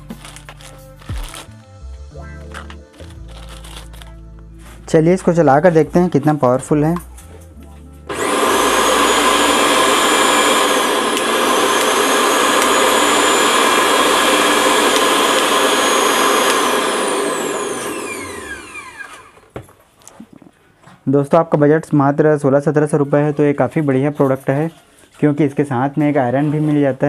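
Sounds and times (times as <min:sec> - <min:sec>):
mixer grinder motor whining: 0:08.1 - 0:19.6.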